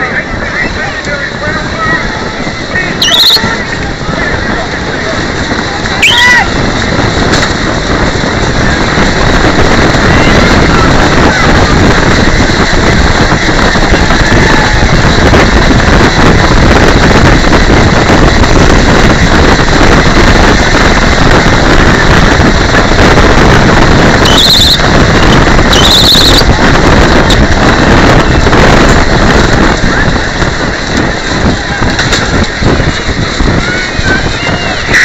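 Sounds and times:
vehicle wind and road rumble: 0.0s - 35.0s
short high squeals: 6.0s - 6.4s, 24.3s - 24.8s.

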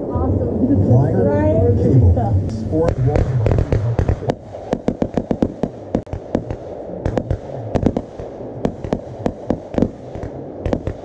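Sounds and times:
fireworks bursting: 2.5s - 11.0s
fireworks crackling: 2.5s - 11.0s.

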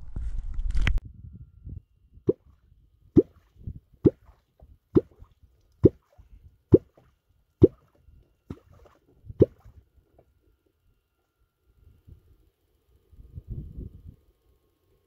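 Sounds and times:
wooden clonk striking water: 6.8s - 9.7s.

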